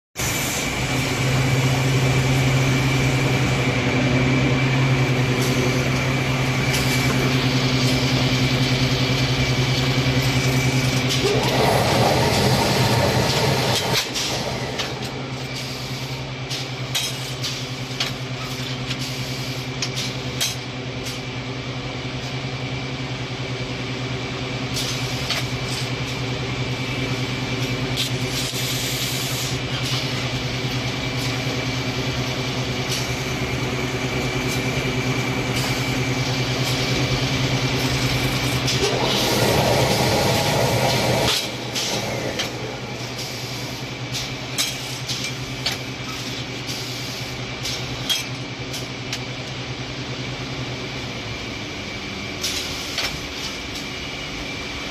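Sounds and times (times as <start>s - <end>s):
machine humming: 0.2s - 16.4s, 26.0s - 44.4s.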